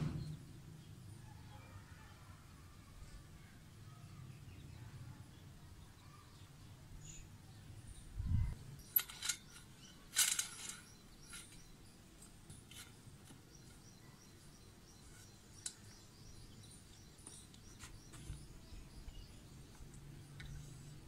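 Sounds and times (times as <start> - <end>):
metal tripod clicks and knocks: 8.8 - 11.6
metal clinks: 8.8 - 11.7.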